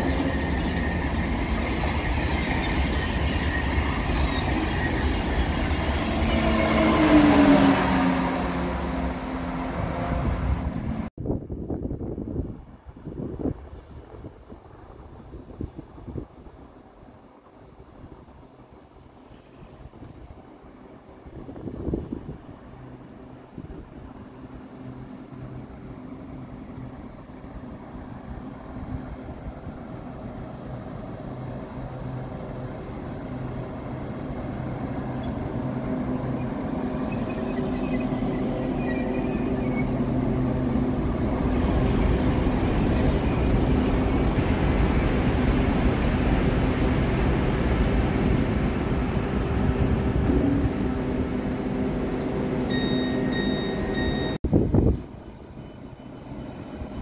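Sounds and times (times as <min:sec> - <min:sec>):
electric train passing: 0:00.0 - 0:11.1, 0:20.5 - 0:54.4, 0:55.0 - 0:57.0
high-pitched beeping: 0:52.7 - 0:54.4.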